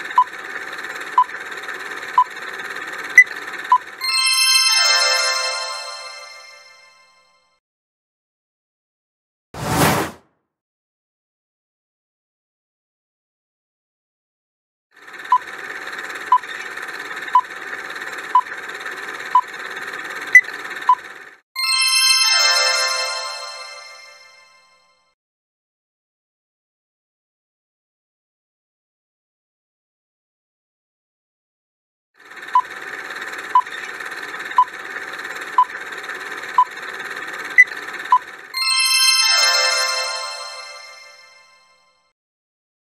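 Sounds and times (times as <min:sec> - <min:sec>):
bright ringing chime: 0:04.0 - 0:07.2, 0:21.6 - 0:24.8, 0:38.6 - 0:41.9.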